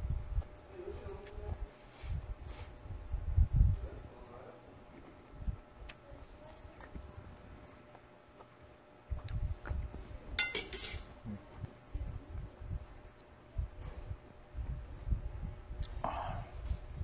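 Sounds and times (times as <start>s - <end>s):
tableware clinking: 10.4s - 11.1s.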